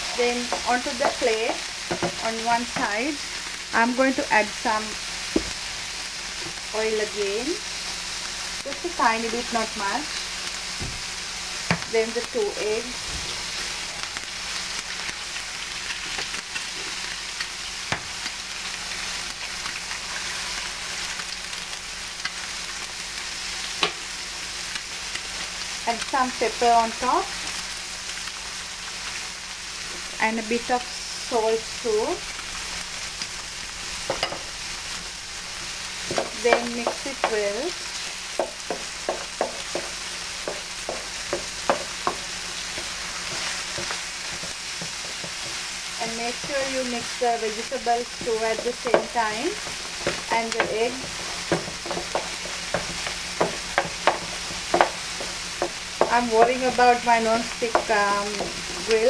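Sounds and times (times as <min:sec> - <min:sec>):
eggs sizzling and popping: 0:00.0 - 0:59.0
spatula tapping a plate: 0:51.5 - 0:56.2.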